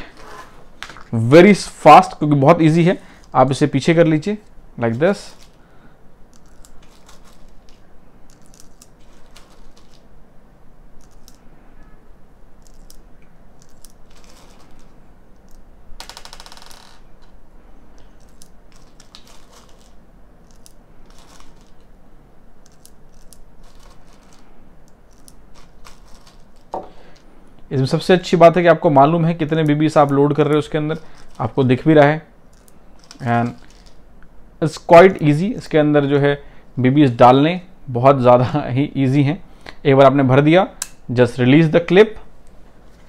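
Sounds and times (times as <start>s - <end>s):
metal bbs rattling: 6.4s - 10.1s, 12.6s - 17.4s, 18.0s - 21.9s, 22.6s - 27.3s, 32.5s - 34.0s.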